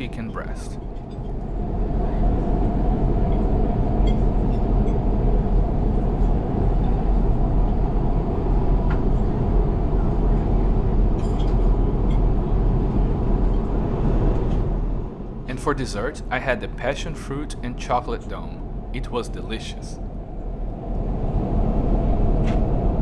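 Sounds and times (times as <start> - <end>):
jet engine drone: 0.0 - 23.0
deep low rumble: 0.7 - 19.0, 20.0 - 23.0
airflow rushing: 18.3 - 23.0.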